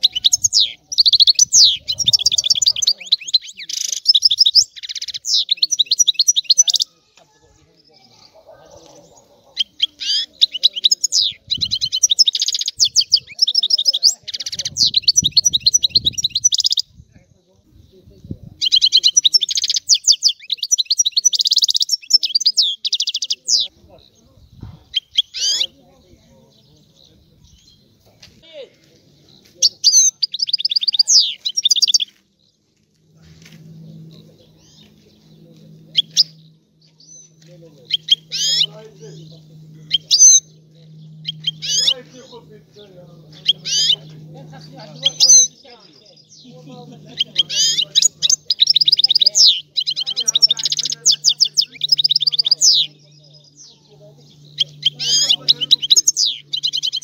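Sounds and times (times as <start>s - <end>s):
goldfinch twittering song: 0.0s - 6.9s, 9.0s - 17.0s, 18.6s - 24.2s, 24.9s - 25.8s, 29.2s - 32.2s, 33.4s - 42.5s, 43.2s - 57.0s
sharp bird calls: 0.0s - 17.0s, 17.7s - 32.5s, 33.2s - 57.0s
low steady hum: 32.2s - 57.0s.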